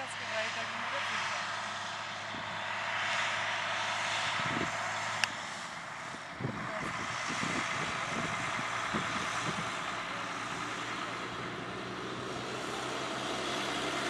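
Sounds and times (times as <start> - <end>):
wind buffeting microphone: 2.2 - 2.7, 4.2 - 11.6.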